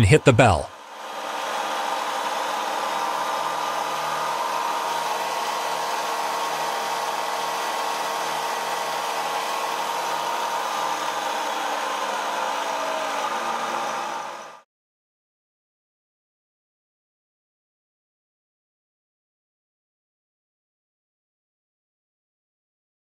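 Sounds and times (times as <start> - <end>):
drill press motor whirring: 0.8 - 14.6.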